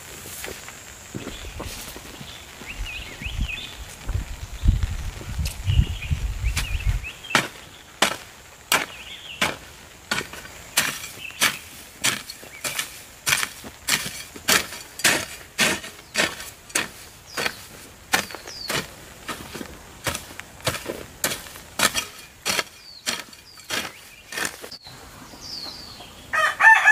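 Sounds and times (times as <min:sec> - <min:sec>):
hoe chopping into dry soil: 0:06.6 - 0:24.8.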